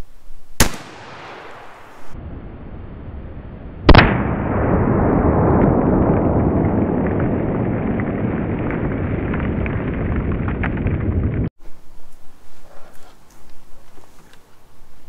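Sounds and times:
shotgun blast echo rumble: 0.6 - 2.2, 3.9 - 8.9.

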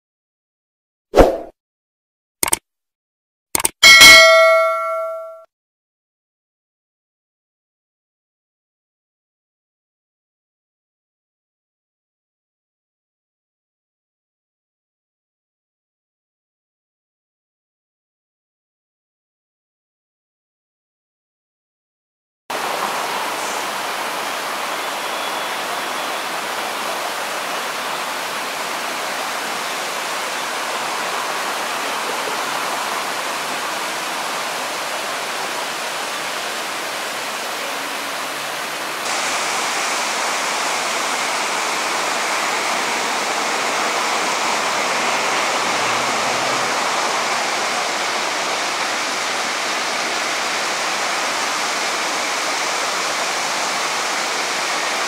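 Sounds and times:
waterfall rushing: 22.5 - 55.0.

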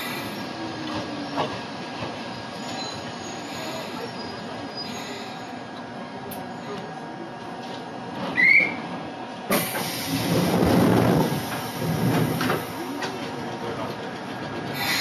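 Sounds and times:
mechanical clatter from train: 0.8 - 3.1, 7.6 - 15.0.

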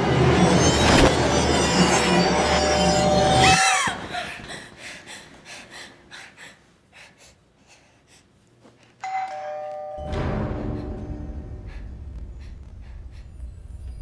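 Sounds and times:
two-tone doorbell chime: 9.0 - 10.6.

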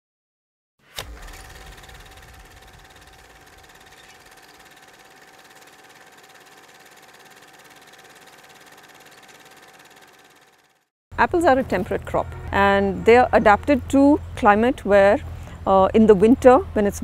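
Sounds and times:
film projector clatter: 1.0 - 10.9
thin steady whine: 1.0 - 17.0.

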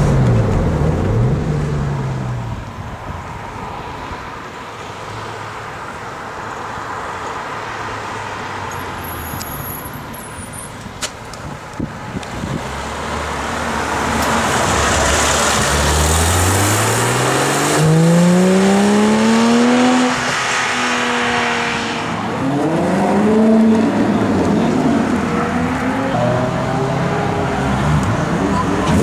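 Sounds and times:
car engine accelerating hard: 12.2 - 29.0.

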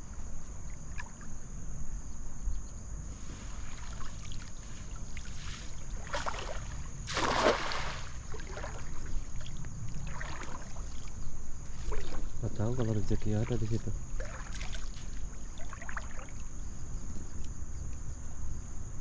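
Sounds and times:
wind rumble on microphone: 0.0 - 15.6
high insect drone: 0.0 - 19.0
net splashing into water: 5.2 - 11.1, 11.7 - 12.3, 13.4 - 16.4.

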